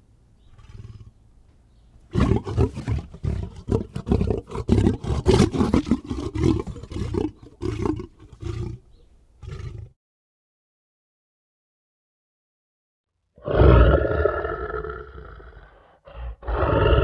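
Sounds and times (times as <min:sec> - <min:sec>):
lion roaring: 0:00.5 - 0:01.2, 0:02.1 - 0:08.8, 0:09.4 - 0:10.0, 0:13.4 - 0:17.0.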